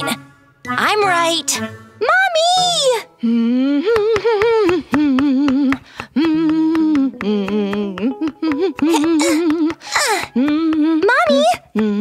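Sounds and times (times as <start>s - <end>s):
woman humming: 3.2s - 12.0s.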